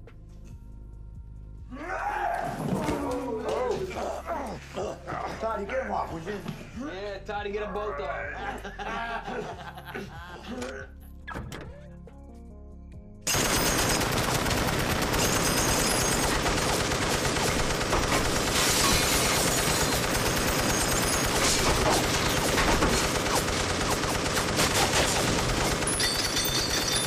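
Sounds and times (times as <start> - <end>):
machine gun automatic fire: 13.3 - 27.0.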